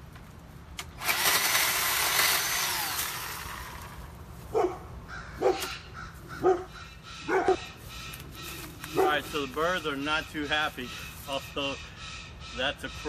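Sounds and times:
electric chainsaw cutting branch: 0.8 - 4.1
crow cawing: 5.1 - 9.6, 10.6 - 13.0.

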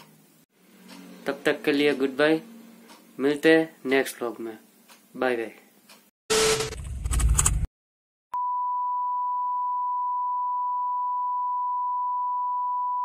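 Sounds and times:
steady electronic sine tone: 8.4 - 13.0.

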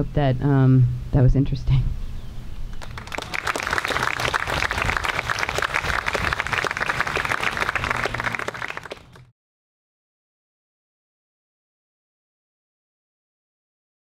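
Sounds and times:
audience applauding: 2.8 - 9.3.

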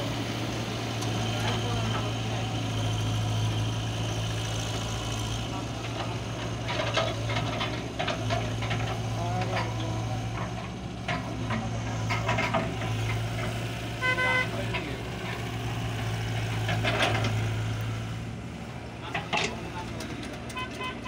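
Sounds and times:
excavator diesel engine: 0.0 - 21.0
knocks and clatter: 5.9 - 13.6, 16.4 - 17.4.

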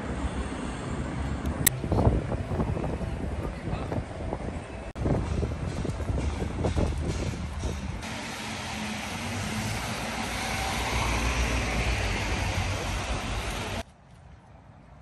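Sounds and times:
vehicle engine hum: 0.0 - 13.9
tyre hiss on wet road: 8.0 - 13.8.

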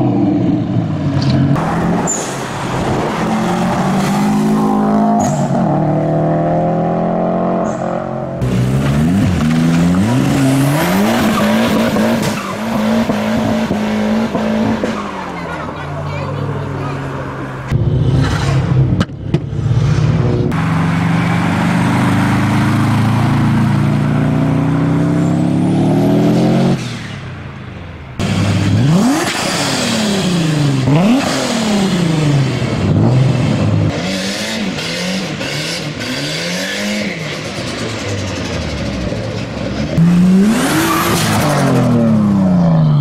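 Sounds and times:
car engine accelerating: 0.0 - 27.2
car engine revving through gears: 1.2 - 15.2, 17.7 - 27.1, 28.2 - 39.2, 39.8 - 42.8.

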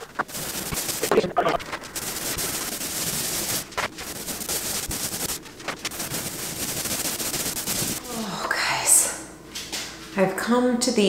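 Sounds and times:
paint roller on wall: 0.0 - 8.5.

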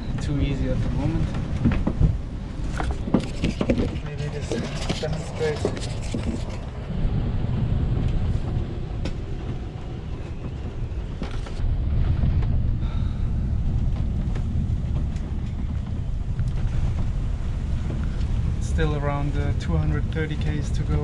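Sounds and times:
sailboat rumble in rough sea: 0.0 - 21.0
wind noise on microphone: 0.0 - 21.0
knocks in boat cabin: 1.2 - 2.2.

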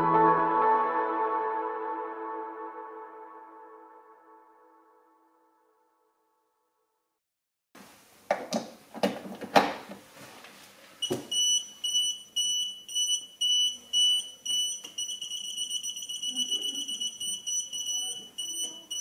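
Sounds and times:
voltage tester pen beeping: 11.0 - 19.0.

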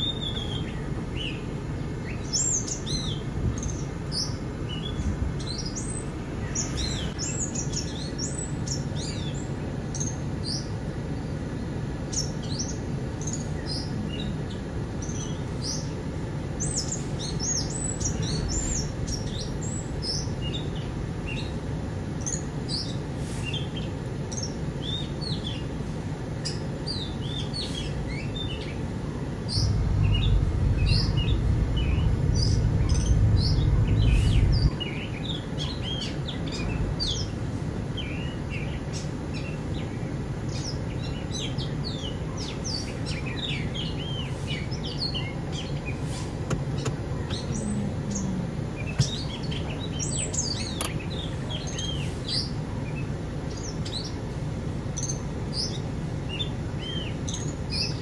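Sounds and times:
low background hum: 0.0 - 58.0
small birds chirping: 0.0 - 58.0
low rumble: 29.3 - 35.3.

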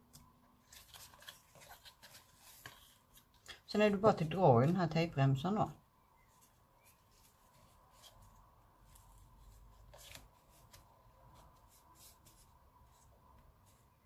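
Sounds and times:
cardstock rustling: 0.0 - 4.8, 6.3 - 14.0.

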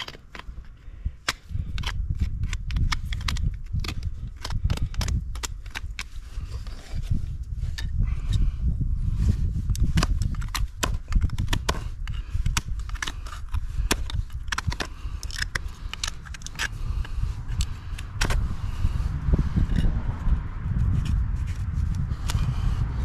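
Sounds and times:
knife scraping hoof: 0.0 - 20.1
low rumble: 12.8 - 23.0.

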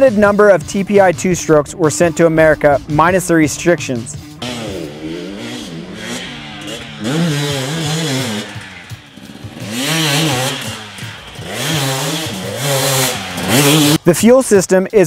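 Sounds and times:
dirt bike engine revving: 4.2 - 14.1.

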